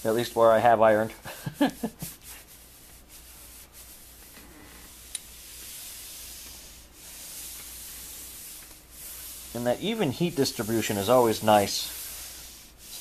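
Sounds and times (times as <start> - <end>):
iron sliding over fabric: 3.2 - 13.0.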